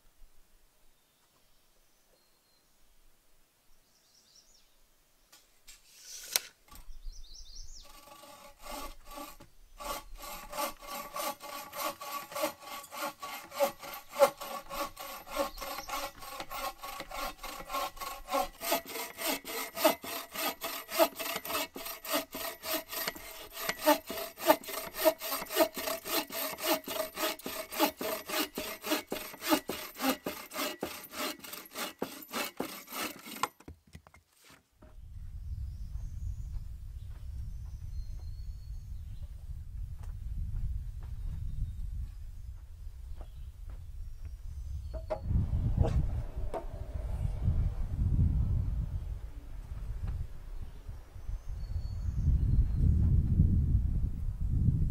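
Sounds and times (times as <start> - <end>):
bow saw cutting log: 5.8 - 6.9, 7.7 - 33.7, 45.0 - 47.0.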